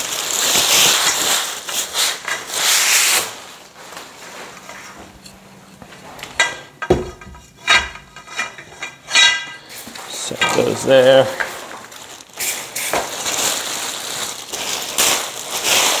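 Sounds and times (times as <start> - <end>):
packing wrap rustling and tearing: 0.0 - 5.1, 9.2 - 16.0
metal parts clanking: 5.2 - 11.6.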